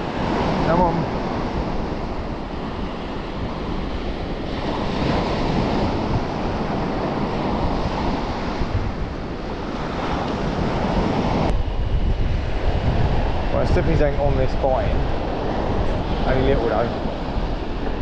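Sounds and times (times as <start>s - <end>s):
small waves breaking: 0.0s - 11.5s
wind rumbling on microphone: 0.0s - 18.0s.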